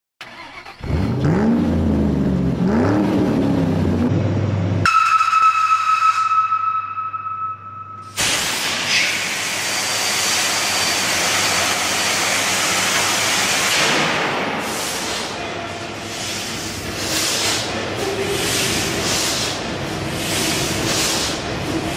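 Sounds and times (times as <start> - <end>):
engine air hiss: 14.5 - 21.9.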